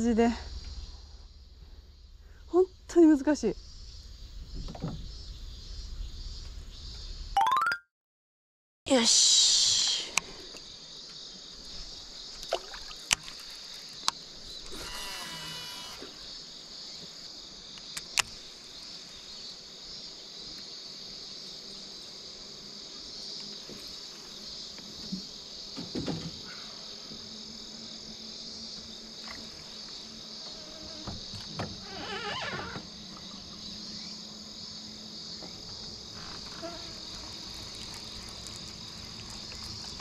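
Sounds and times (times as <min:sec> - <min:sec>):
insects droning: 0:00.0 - 0:07.4, 0:08.9 - 0:40.0
fishing reel whine: 0:14.6 - 0:16.1.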